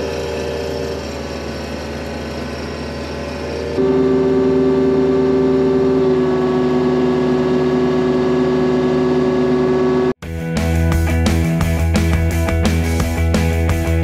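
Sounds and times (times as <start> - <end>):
diesel engine humming: 0.0 - 10.2.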